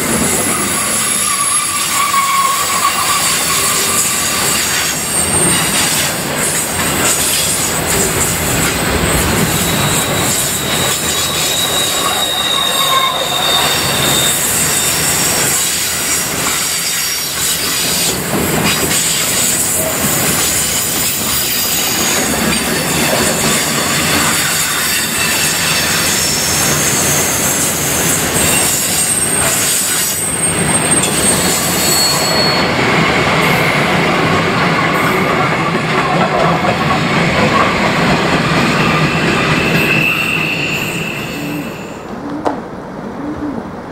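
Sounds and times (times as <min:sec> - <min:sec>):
freight wagons rumbling on rails: 0:00.0 - 0:43.9
high-pitched wheel squeals: 0:00.2 - 0:06.6, 0:07.2 - 0:18.2, 0:18.9 - 0:33.8, 0:38.4 - 0:42.2
wheels clacking over rail joints: 0:13.4 - 0:40.1.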